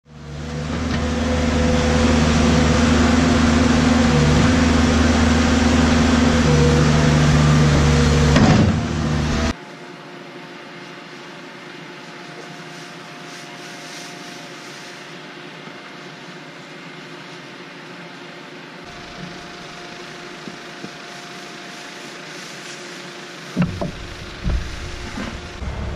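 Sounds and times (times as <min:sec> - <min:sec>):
diesel engine running: 0:00.0 - 0:09.6, 0:18.9 - 0:25.9.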